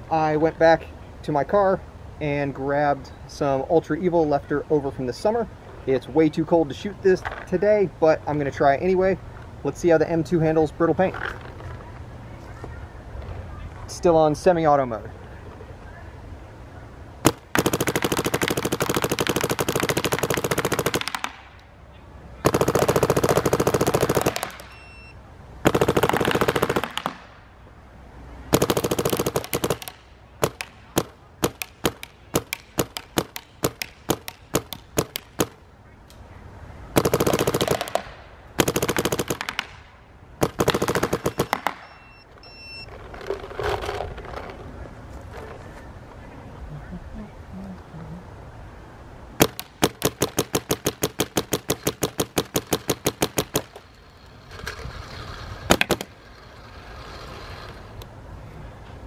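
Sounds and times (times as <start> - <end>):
paintball marker firing: 17.2 - 21.6, 22.4 - 24.8, 25.6 - 27.4, 28.5 - 35.6, 37.0 - 41.9, 49.4 - 53.8, 55.7 - 56.1.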